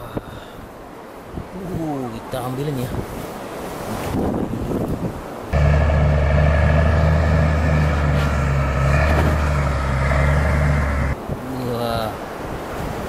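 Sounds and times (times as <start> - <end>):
bulldozer diesel engine drone: 5.6 - 11.2.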